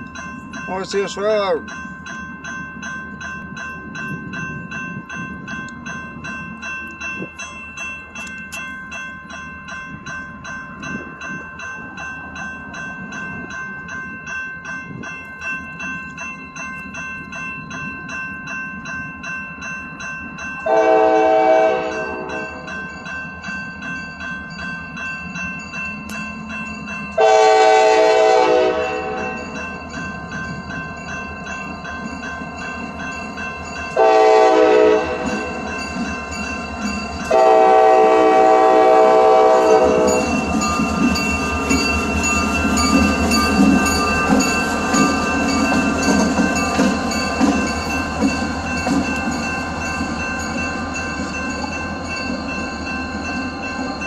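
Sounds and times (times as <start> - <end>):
crossing bell ringing: 0.0 - 54.0
diesel locomotive engine: 0.0 - 54.0
train wheels on rails: 0.0 - 54.0
locomotive air horn blasts: 20.7 - 22.7, 27.2 - 29.4, 34.0 - 35.5, 37.3 - 40.2.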